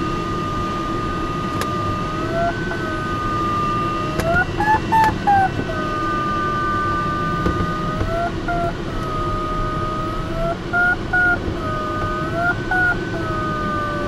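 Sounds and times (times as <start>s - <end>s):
electronic tone rising and falling: 1.9s - 14.0s
short electronic beeps: 10.8s - 11.4s.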